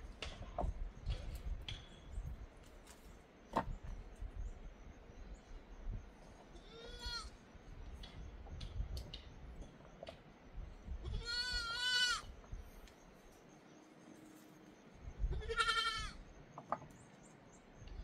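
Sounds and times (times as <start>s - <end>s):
goat bleating: 6.6s - 7.3s, 11.0s - 12.3s, 15.3s - 16.2s.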